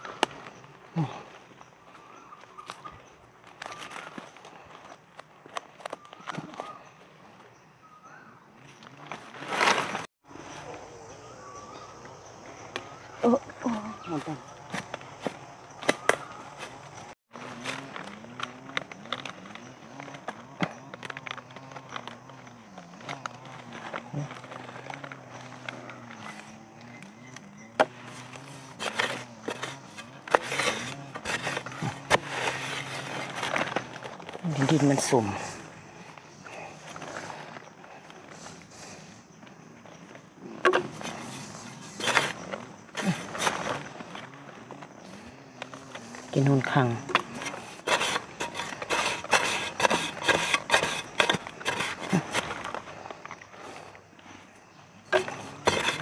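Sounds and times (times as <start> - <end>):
scraping and crumbling soil: 0.0 - 7.6, 8.6 - 56.0
hand tool striking earth: 14.1 - 18.4, 27.7 - 35.2, 40.6 - 44.1, 46.0 - 52.9, 55.1 - 56.0.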